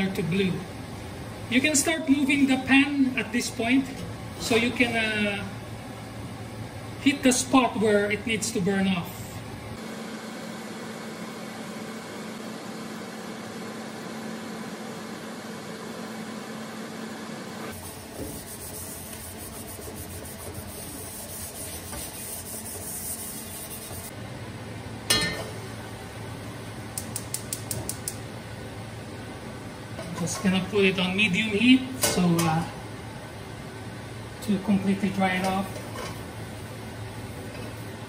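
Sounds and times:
exhaust fan humming: 0.0s - 38.0s
wok scrubbed in metal sink: 17.8s - 24.1s
metal clunk of wok set down: 25.1s - 25.6s.

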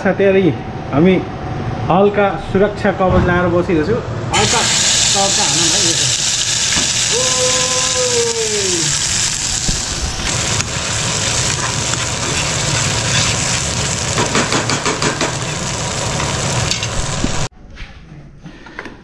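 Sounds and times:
chili paste sizzling in hot oil: 4.3s - 17.5s
spoon scraping a pan: 11.4s - 15.6s.

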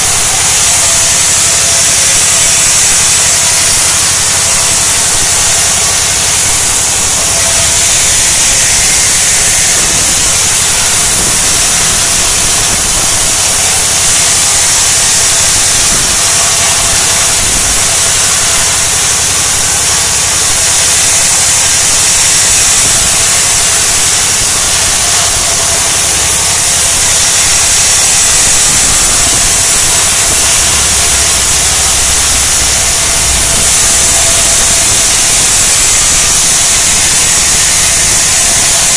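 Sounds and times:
band saw cutting wood: 0.0s - 38.9s
saw machine running: 0.0s - 38.9s.

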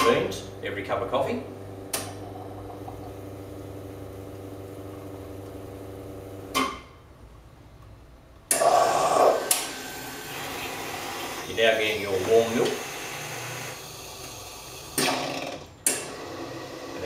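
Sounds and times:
coffee machine pump humming: 0.0s - 6.6s, 8.5s - 15.1s
loud steam hiss: 8.5s - 10.2s.

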